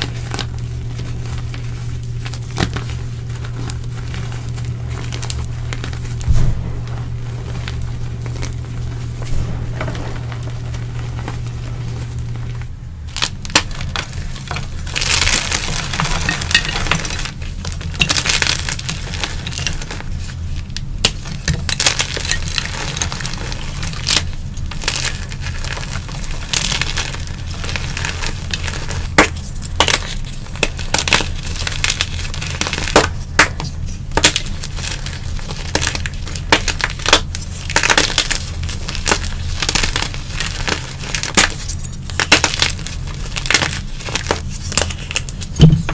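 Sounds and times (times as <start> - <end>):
hands crushing chalk blocks: 13.1 - 45.9.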